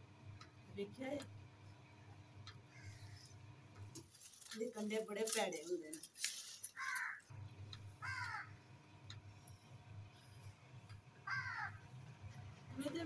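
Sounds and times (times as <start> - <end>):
crow cawing: 2.7 - 3.3, 6.8 - 7.3, 8.0 - 8.6, 11.2 - 11.8.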